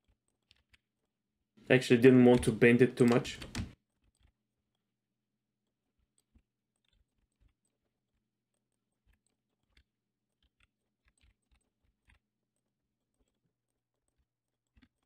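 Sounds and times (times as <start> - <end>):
computer mouse and keyboard clicks: 2.3 - 3.8.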